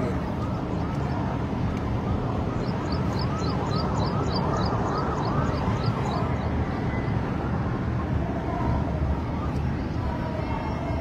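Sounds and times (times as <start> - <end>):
vehicle and road rumble: 0.0 - 11.0.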